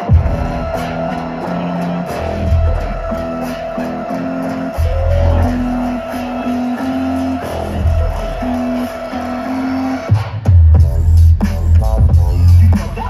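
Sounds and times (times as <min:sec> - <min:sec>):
deep bass hits: 0:00.0 - 0:03.3, 0:10.1 - 0:13.0
electronic bass music: 0:00.0 - 0:13.0.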